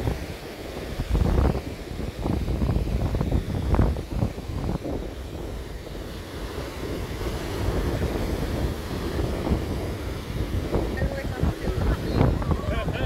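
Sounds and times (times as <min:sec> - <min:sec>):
surf washing on beach: 0:00.0 - 0:13.0
wind buffeting microphone: 0:00.0 - 0:13.0.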